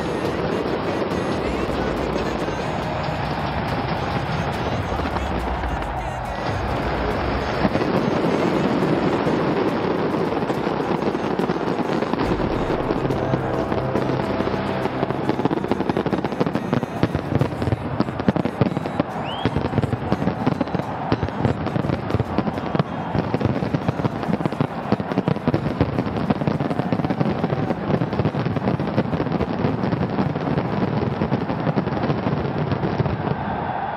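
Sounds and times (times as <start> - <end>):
fireworks crackling and banging: 0.0 - 33.9.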